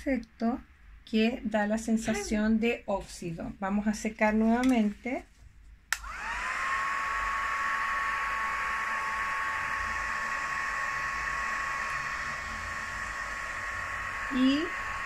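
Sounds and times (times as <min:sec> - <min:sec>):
heat gun switch click: 0:05.9 - 0:06.2
heat gun fan whine: 0:05.9 - 0:15.0.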